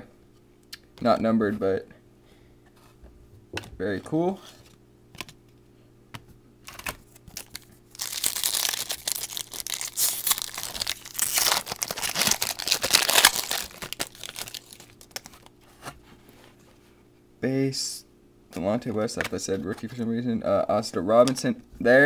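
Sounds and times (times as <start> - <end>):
foil wrapper crinkling: 6.7 - 15.5.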